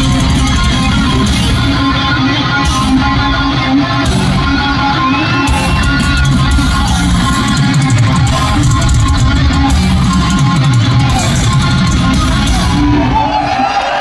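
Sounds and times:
heavy metal band playing live: 0.0 - 14.0.

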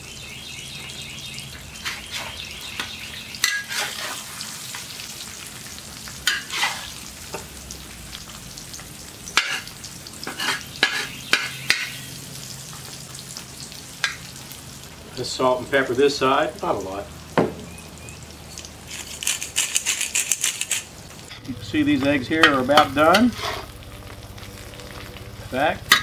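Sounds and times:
eggs sizzling in oil: 0.0 - 26.0
metal spatula scraping metal: 3.4 - 4.4, 6.3 - 6.9, 10.3 - 12.0, 22.4 - 23.8.

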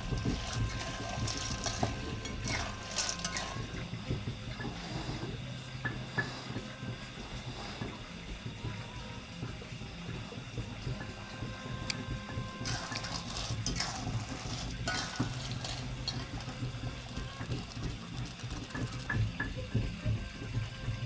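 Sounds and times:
utensil scraping and clinking on pot: 0.0 - 3.8, 12.6 - 19.2
steady low hum: 0.0 - 21.0.

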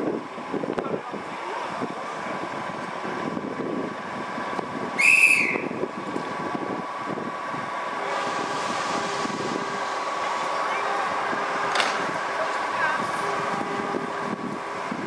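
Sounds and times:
locomotive engine hum: 0.0 - 15.0
locomotive horn blast: 8.0 - 11.8, 12.7 - 14.4.

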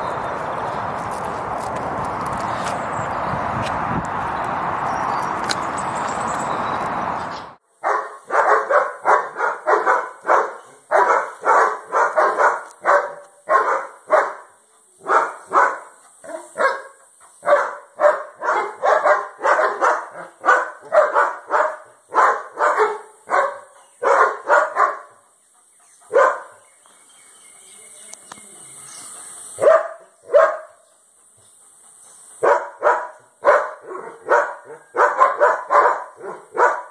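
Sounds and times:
dog barking: 7.8 - 25.2, 26.1 - 26.6, 29.6 - 30.8, 32.4 - 36.9.

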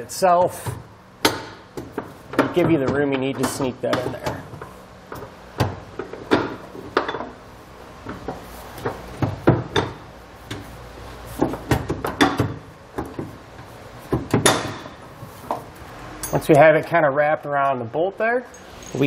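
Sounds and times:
metal clinks and knocks: 16.2 - 16.5, 18.5 - 19.0.

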